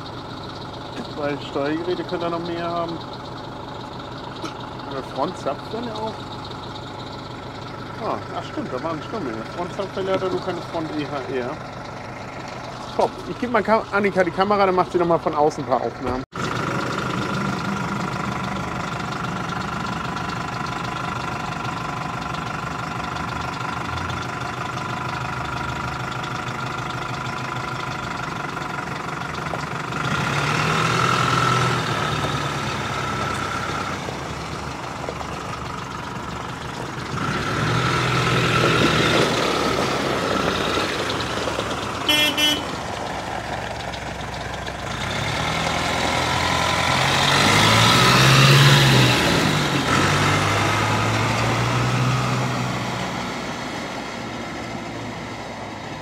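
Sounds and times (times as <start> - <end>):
tractor diesel engine revving: 0.0 - 56.0
short tooting beep: 42.1 - 42.7.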